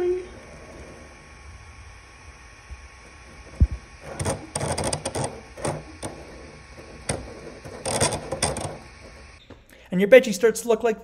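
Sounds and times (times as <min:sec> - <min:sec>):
printer rattling and grinding: 0:02.9 - 0:09.4.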